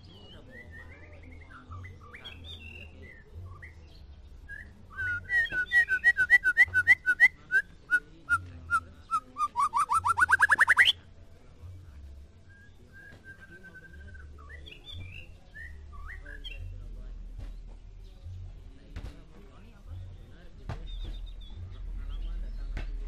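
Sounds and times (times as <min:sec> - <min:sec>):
bird singing whistled phrases: 0:00.1 - 0:11.0, 0:12.5 - 0:16.7.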